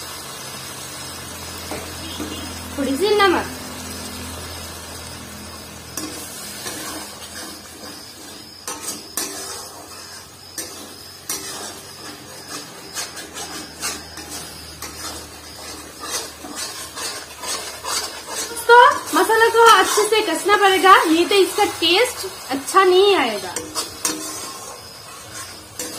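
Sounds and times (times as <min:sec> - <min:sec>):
low sizzle: 0:00.0 - 0:25.9
ladle scraping paste in pan: 0:05.8 - 0:25.9.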